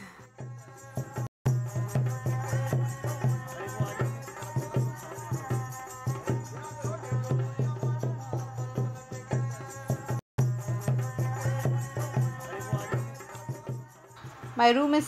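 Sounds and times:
quick percussion beat: 0:00.4 - 0:15.0.

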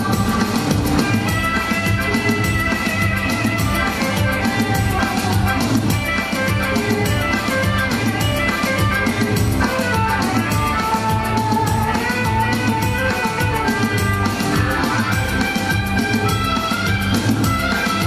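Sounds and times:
karaoke backing track: 0:00.0 - 0:18.0.

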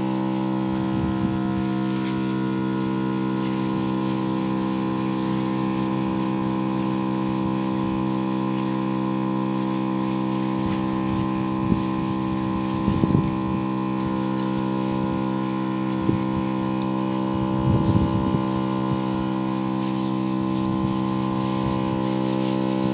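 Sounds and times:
sprayer pump running: 0:00.0 - 0:22.9.

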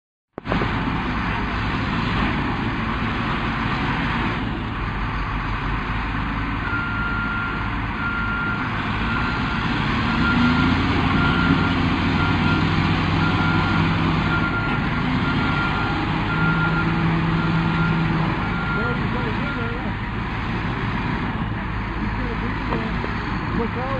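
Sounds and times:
bulldozer diesel engine under load: 0:00.3 - 0:23.9
backup alarm beeping: 0:13.2 - 0:19.9.

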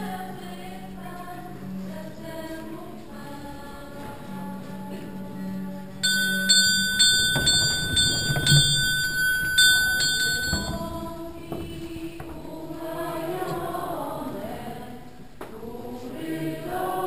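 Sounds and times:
small altar bells ringing: 0:06.0 - 0:11.3.

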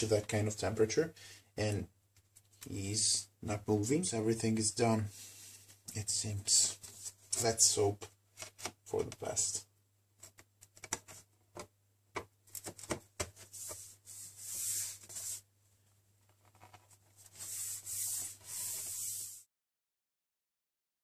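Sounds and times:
hands rubbing on metal case: 0:12.6 - 0:15.4, 0:16.3 - 0:19.4.

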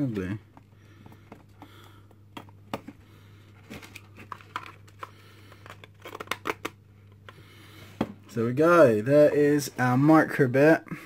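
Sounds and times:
steady low hum: 0:00.0 - 0:11.0
clicks and scrapes of plastic parts: 0:03.6 - 0:07.4.

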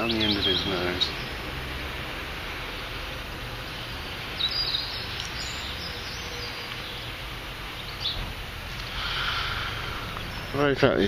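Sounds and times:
high bird chirps: 0:00.0 - 0:01.4, 0:03.7 - 0:11.0
outdoor background noise: 0:00.0 - 0:11.0.

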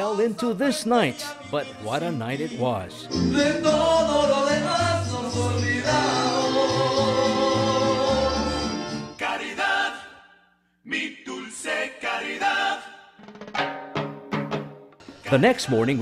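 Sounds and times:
backing music: 0:00.0 - 0:09.9, 0:11.0 - 0:16.0
karaoke singing: 0:00.0 - 0:10.1, 0:15.0 - 0:16.0.

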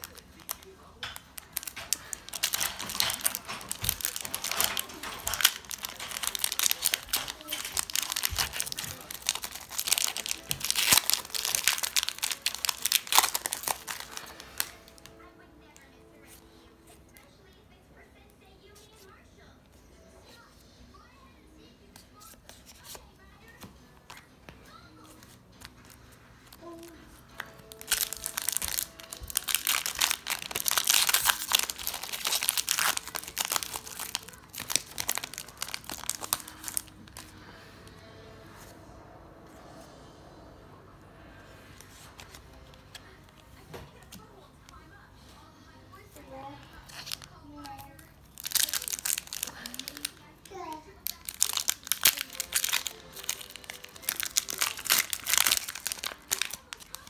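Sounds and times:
foil wrapper crinkling: 0:00.0 - 0:15.2, 0:22.2 - 0:37.5, 0:46.8 - 0:57.0
faint background music: 0:00.0 - 0:57.0.

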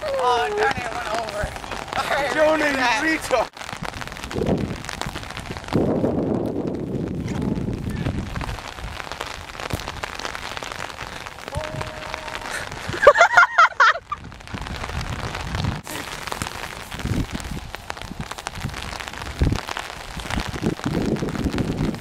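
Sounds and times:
person yelling: 0:00.0 - 0:01.2, 0:11.4 - 0:12.7
wind on microphone: 0:03.6 - 0:13.3, 0:13.9 - 0:22.0.

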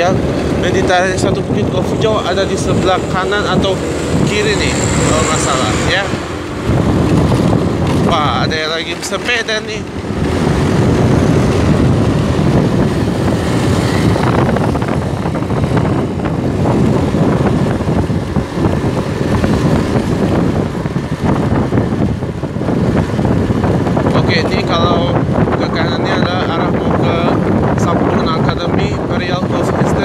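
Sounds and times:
road noise: 0:00.0 - 0:30.0
wind rumbling on microphone: 0:00.0 - 0:30.0
scooter engine running: 0:00.2 - 0:24.1.

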